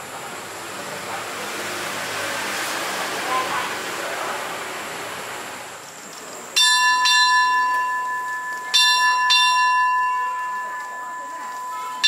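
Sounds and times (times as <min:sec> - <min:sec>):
signal bell ringing: 0:06.6 - 0:12.0.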